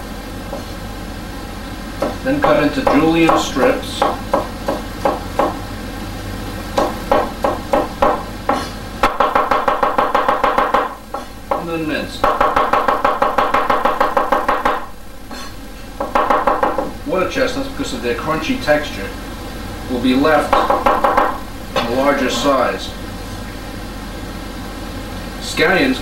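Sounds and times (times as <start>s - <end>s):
cleaver chopping on wooden board: 2.0s - 5.6s, 6.8s - 14.9s.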